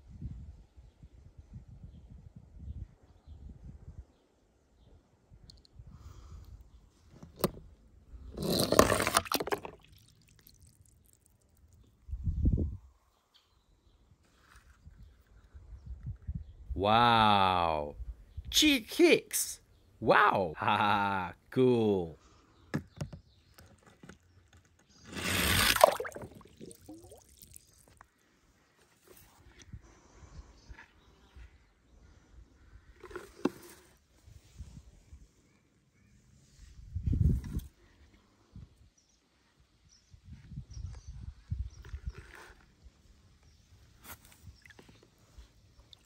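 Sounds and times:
toy car sliding down plastic slide: 0:08.4 - 0:09.7, 0:24.9 - 0:26.0
water sloshing: 0:25.0 - 0:28.0
splash into water: 0:25.2 - 0:27.8
bubbly gurgles: 0:25.4 - 0:27.7.

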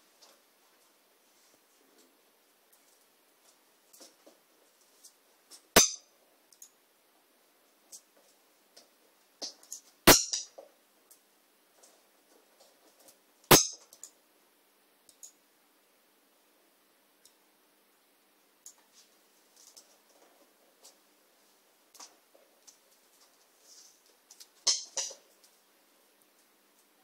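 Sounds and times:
beak and claws tapping tiles: 0:24.3 - 0:25.6
toy clinking on tile floor: 0:24.6 - 0:25.2.

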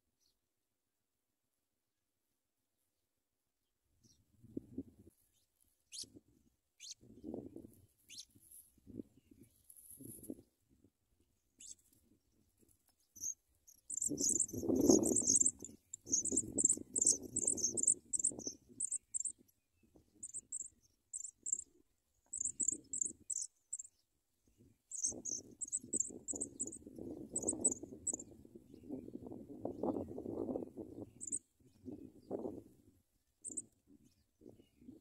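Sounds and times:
nestlings begging cheeps: 0:13.9 - 0:19.4, 0:20.2 - 0:21.6, 0:22.3 - 0:23.9, 0:24.9 - 0:26.8, 0:27.4 - 0:28.2.

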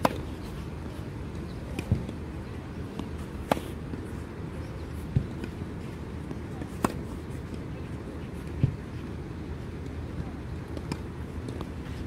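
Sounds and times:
tennis ball struck by racket: 0:00.0 - 0:00.2, 0:02.9 - 0:04.0, 0:06.3 - 0:07.1
ball bounce: 0:05.1 - 0:05.5.

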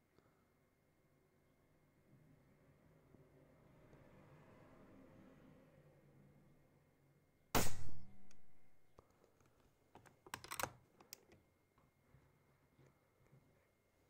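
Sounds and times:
airgun shot crack: 0:07.6 - 0:08.7.

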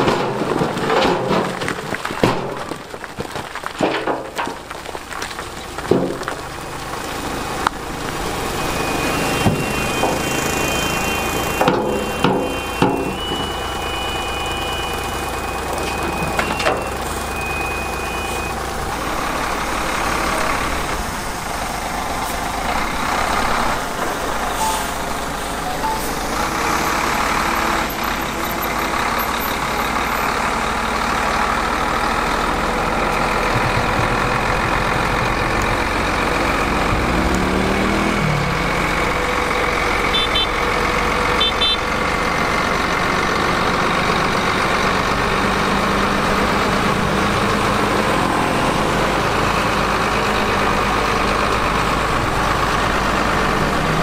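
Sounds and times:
diesel truck engine running: 0:00.0 - 0:54.0
short beeps: 0:08.6 - 0:18.6, 0:24.6 - 0:25.0, 0:25.6 - 0:26.4.

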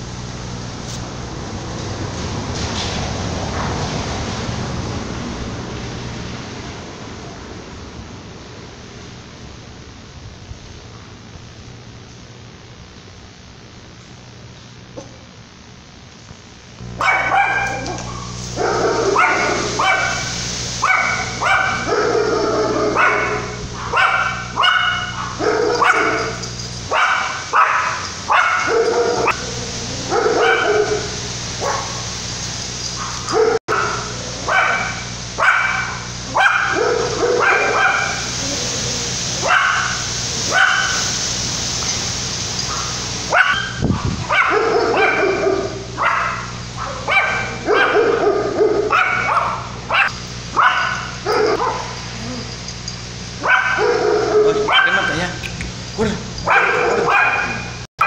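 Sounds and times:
dog barking: 0:16.9 - 0:32.2, 0:32.9 - 0:41.2, 0:42.6 - 0:52.6, 0:53.4 - 0:57.9.

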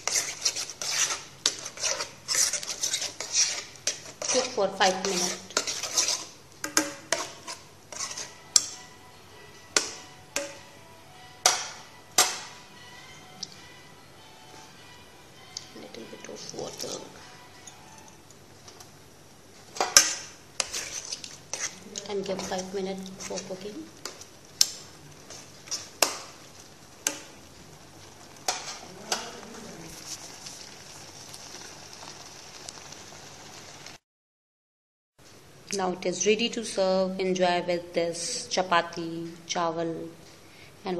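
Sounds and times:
spoon clacking against pan: 0:00.0 - 0:08.8, 0:27.0 - 0:27.4, 0:28.4 - 0:29.4
spoon stirring thick food in pan: 0:00.0 - 0:08.9, 0:19.5 - 0:33.8.

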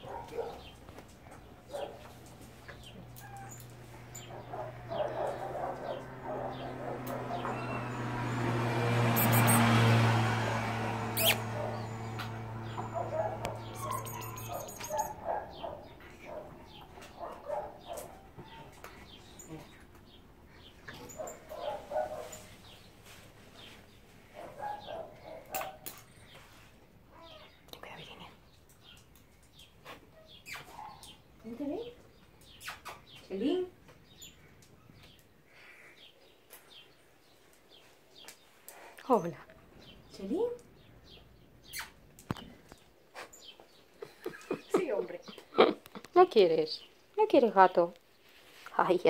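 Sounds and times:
cats and dog squeaky calls: 0:02.6 - 0:08.4, 0:09.1 - 0:09.8, 0:11.0 - 0:19.8, 0:29.8 - 0:31.0, 0:32.5 - 0:33.1, 0:41.6 - 0:42.1
cats meowing: 0:13.4 - 0:15.2.

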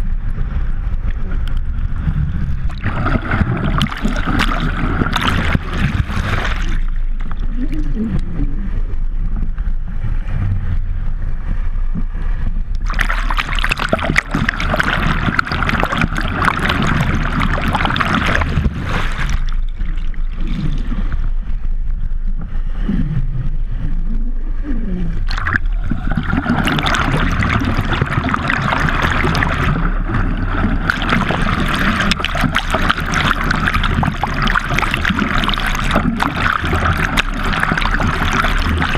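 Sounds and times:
muffled underwater rush: 0:00.0 - 0:38.9
water splashing and spraying: 0:02.6 - 0:08.1, 0:12.8 - 0:21.3, 0:25.2 - 0:38.9.

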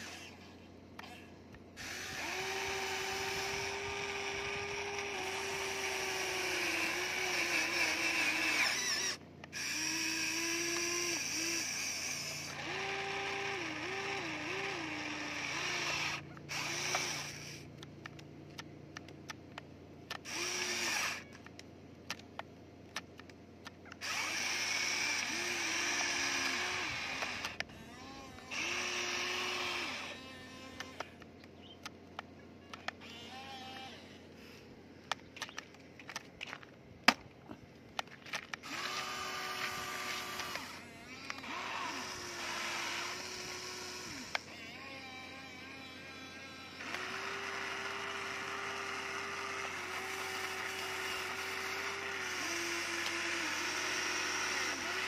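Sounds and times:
toy excavator motors whining: 0:00.0 - 0:55.0.

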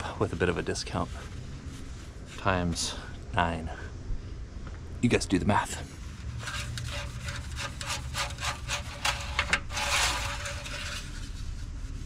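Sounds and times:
dipstick scraping rubs: 0:05.8 - 0:12.0
paper towel rustling: 0:05.9 - 0:12.0.

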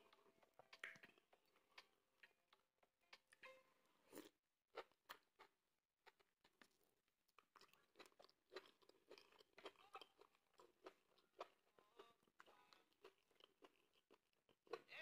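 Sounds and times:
lip-smacking: 0:00.0 - 0:03.4
wet chewing: 0:00.0 - 0:03.4, 0:04.0 - 0:15.0.

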